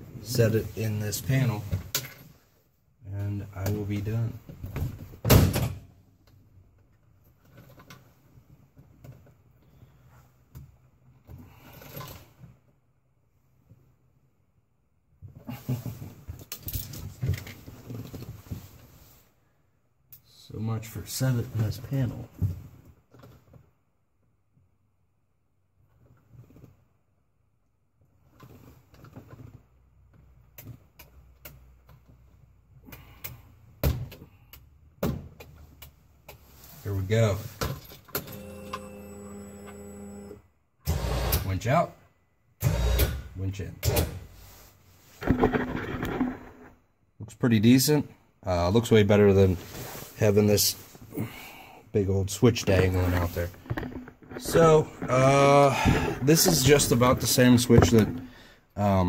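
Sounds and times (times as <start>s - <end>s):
plastic clicks and knocks: 53.5s - 54.5s.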